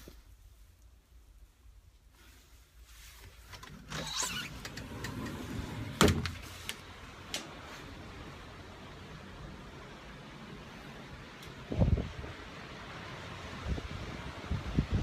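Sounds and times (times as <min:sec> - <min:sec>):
sliding glass door opening: 0:03.1 - 0:09.1
wind and sea rushing: 0:06.8 - 0:15.0.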